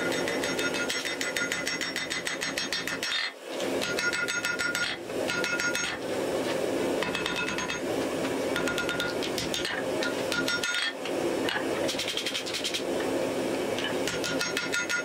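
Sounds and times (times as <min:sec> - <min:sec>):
hammer striking metal on anvil: 0:00.0 - 0:06.0, 0:07.0 - 0:07.8, 0:08.6 - 0:12.5, 0:14.0 - 0:15.0.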